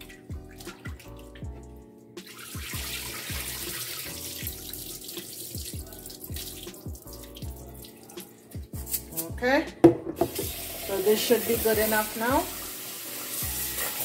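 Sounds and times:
soft background music with beat: 0:00.0 - 0:14.0
water pouring into a sink: 0:02.2 - 0:08.3, 0:10.3 - 0:14.0.

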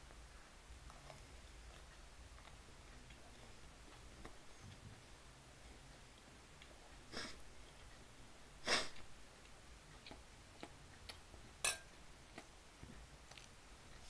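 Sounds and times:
chewing: 0:00.8 - 0:04.8, 0:09.0 - 0:11.5, 0:13.2 - 0:14.0.

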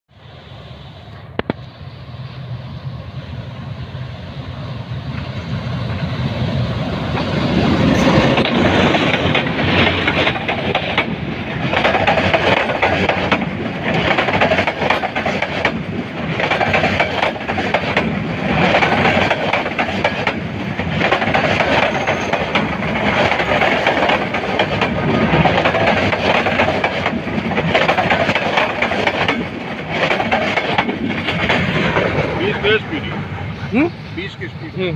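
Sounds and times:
passenger train passing: 0:00.1 - 0:34.9
wheels clattering over rail joints: 0:07.1 - 0:33.2.

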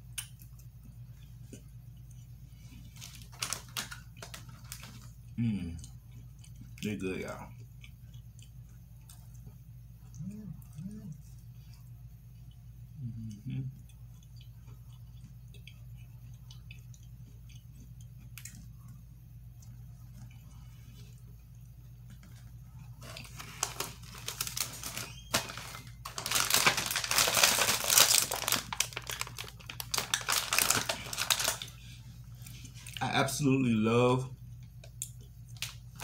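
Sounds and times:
faint steady hum: 0:00.0 - 0:36.0
plastic wrapper crinkling: 0:02.9 - 0:05.2, 0:23.0 - 0:31.8.

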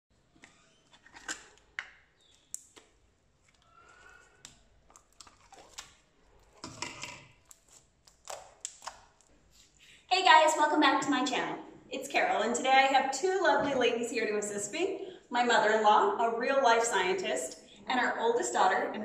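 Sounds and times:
slime squelching and clicking: 0:01.3 - 0:03.7, 0:04.4 - 0:09.3.

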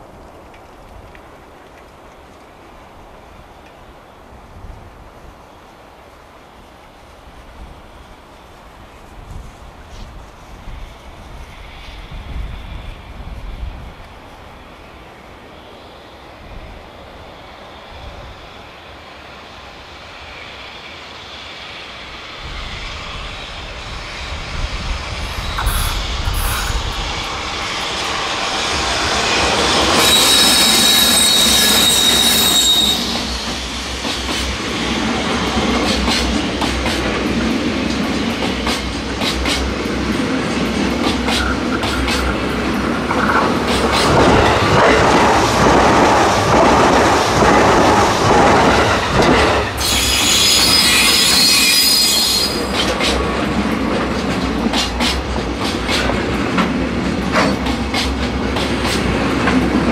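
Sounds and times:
electric locomotive passing: 0:00.0 - 0:59.9
wheels clacking over rail joints: 0:25.4 - 0:59.9
high ringing wheel squeal: 0:29.3 - 0:33.8, 0:49.8 - 0:52.8.

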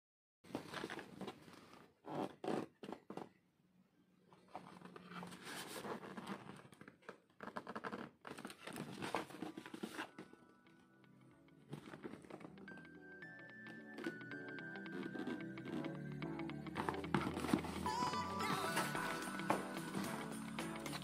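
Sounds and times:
cardboard box being handled: 0:16.8 - 0:18.1.

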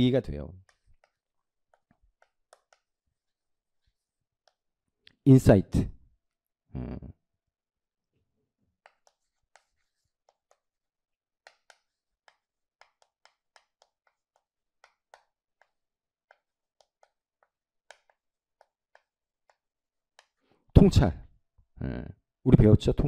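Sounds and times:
chalk tapping and scraping: 0:00.6 - 0:04.7, 0:08.7 - 0:20.6.

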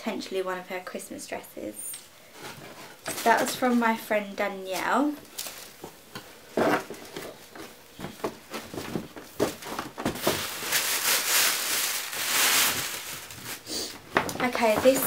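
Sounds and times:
paper bags crackling and knocking: 0:03.0 - 0:03.9, 0:04.7 - 0:06.0, 0:06.8 - 0:15.0
paper rustling and crinkling: 0:04.7 - 0:05.9, 0:06.7 - 0:15.0.

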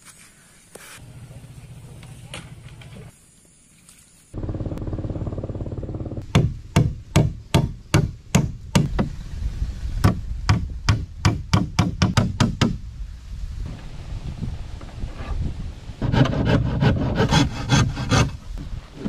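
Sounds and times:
steady low hum: 0:04.4 - 0:08.6
hammer nailing wood: 0:06.3 - 0:09.1, 0:10.0 - 0:12.8.

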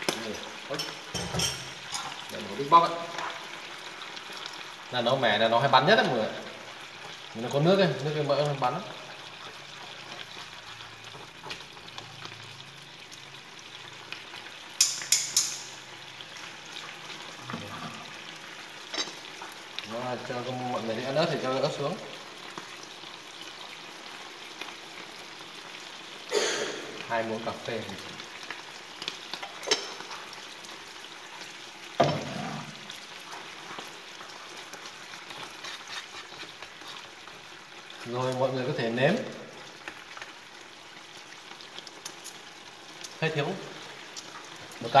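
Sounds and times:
sauce sizzling in a pan: 0:00.0 - 0:45.0
chopsticks stirring: 0:32.3 - 0:38.1.

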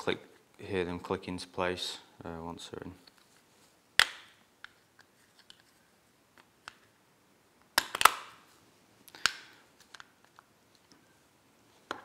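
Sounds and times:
plastic case pieces clicking: 0:07.8 - 0:08.4.

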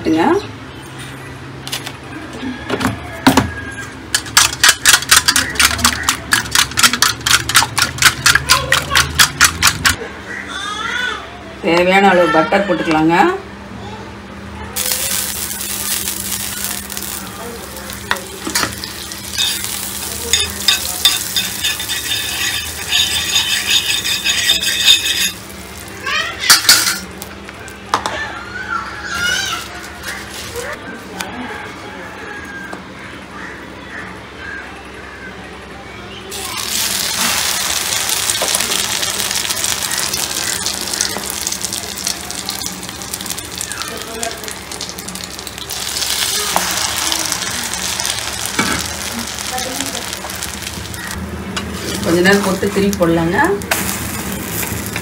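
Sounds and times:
butter sizzling in a pan: 0:14.8 - 0:27.3, 0:36.3 - 0:51.2, 0:51.8 - 0:55.0
spoon scraping a pan: 0:18.1 - 0:25.6.

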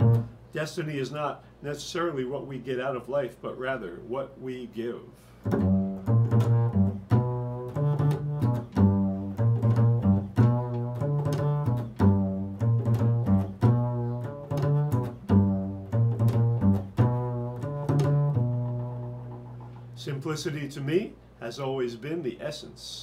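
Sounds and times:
double bass plucked: 0:00.0 - 0:00.5, 0:05.4 - 0:20.2.

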